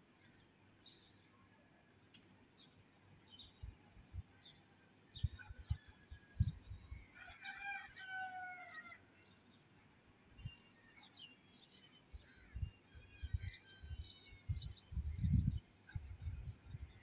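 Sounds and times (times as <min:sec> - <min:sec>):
faint birds chirping: 0:00.0 - 0:17.0.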